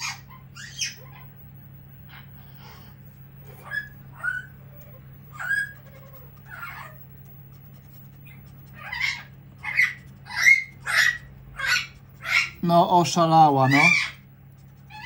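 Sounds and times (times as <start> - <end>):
parrot squawking: 0.0 - 1.4, 3.6 - 7.0, 8.2 - 15.0.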